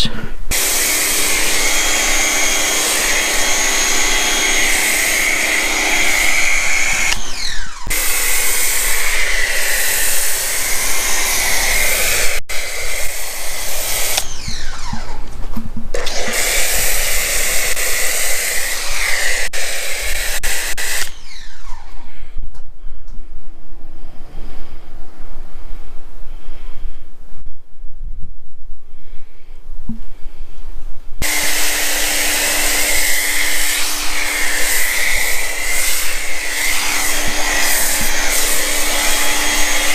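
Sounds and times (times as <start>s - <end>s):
foam spray hissing: 0.5s - 7.1s, 31.2s - 39.9s
pressure washer motor whine: 0.5s - 15.4s, 16.0s - 21.8s, 31.2s - 39.9s.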